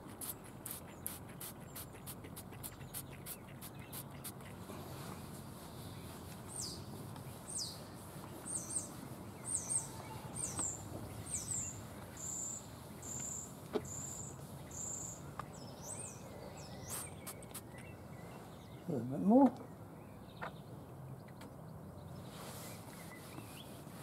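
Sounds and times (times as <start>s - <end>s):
small bird singing: 0.0s - 24.0s.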